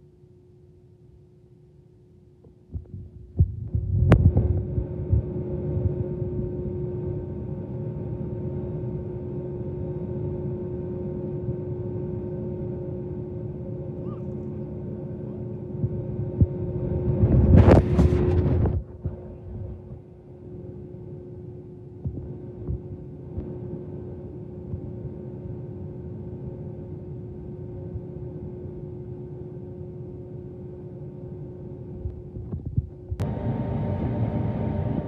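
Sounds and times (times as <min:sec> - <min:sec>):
airliner cabin hum: 0:02.2 - 0:35.0
jet engines idling: 0:33.2 - 0:35.0.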